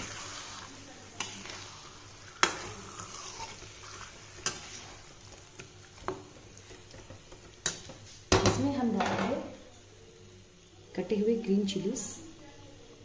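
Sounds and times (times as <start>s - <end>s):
chicken sizzling in oil: 0.0s - 8.6s
spatula knocking and scraping pan: 2.3s - 5.0s.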